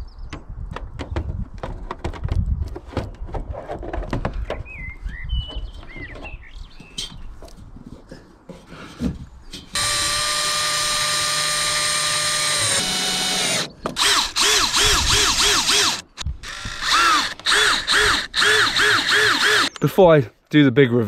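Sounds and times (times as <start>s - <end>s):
cordless drill driving screws: 9.8s - 19.8s.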